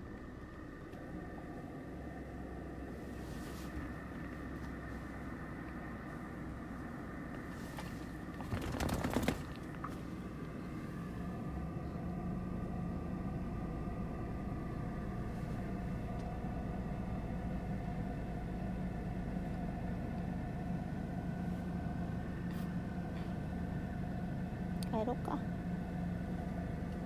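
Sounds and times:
car engine idling: 0.0 - 27.0
fur rustling against microphone: 3.0 - 5.1.

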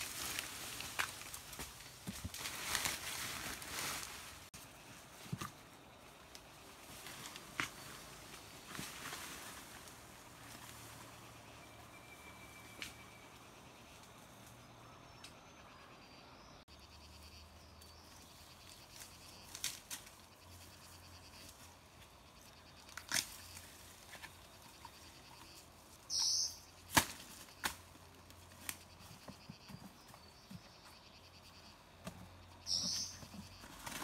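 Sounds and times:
dry bamboo leaves rustling: 0.0 - 11.4, 18.2 - 20.7, 22.7 - 29.1
twigs snapping: 22.9 - 23.6, 26.9 - 27.8.

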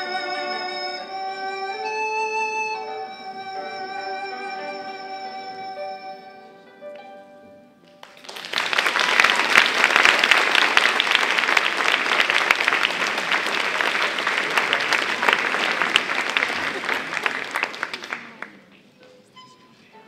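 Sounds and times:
music: 0.0 - 8.4, 19.2 - 20.0
audience applauding: 8.0 - 18.7.

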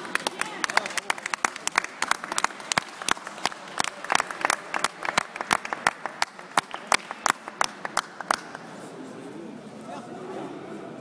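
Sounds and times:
spectators applauding: 0.0 - 8.6.

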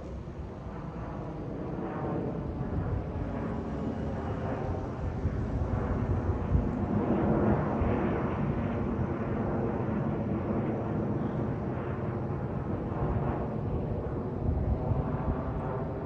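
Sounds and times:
airplane engine rumble: 0.0 - 9.3.

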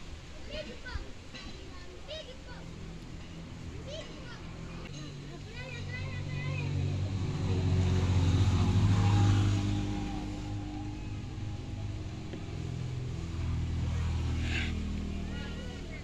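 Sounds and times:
motor engine humming: 4.5 - 16.0.

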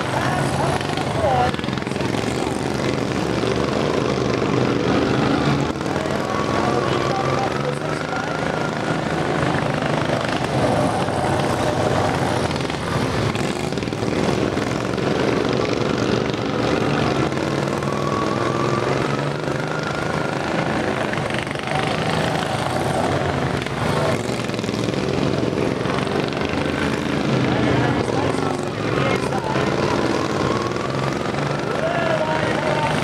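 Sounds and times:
lawn mower engines racing: 0.0 - 33.0.

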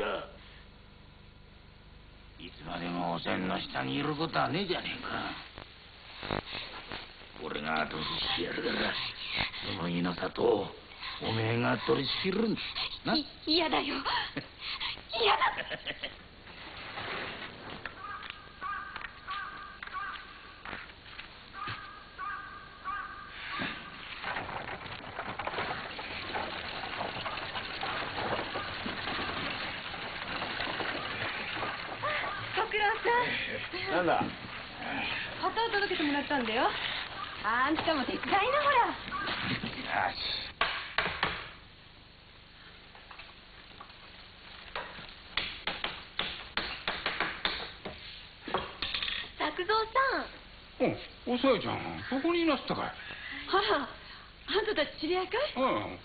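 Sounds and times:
crow cawing: 17.9 - 20.6, 21.5 - 24.1, 28.2 - 29.5.

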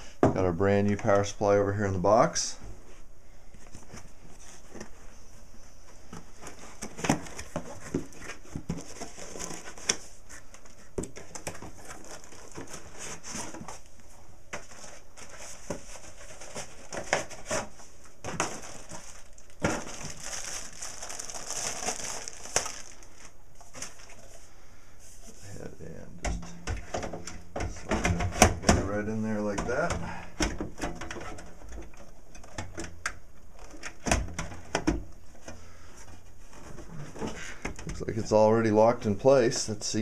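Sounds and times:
packaging crinkling and rustling: 6.2 - 24.4, 30.7 - 34.7.

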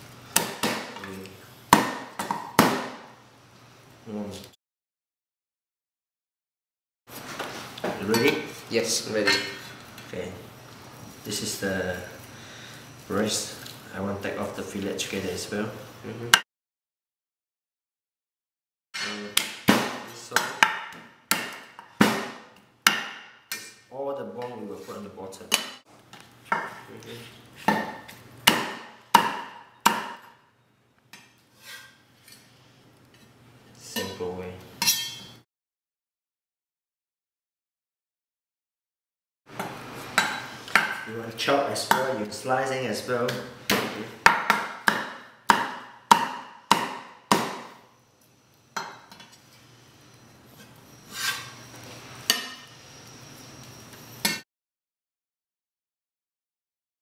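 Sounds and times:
cleaver chopping on wooden block: 1.8 - 3.0, 19.4 - 23.3, 27.7 - 30.2, 43.7 - 47.8
blade scraping on block: 31.6 - 32.5, 50.6 - 51.6.

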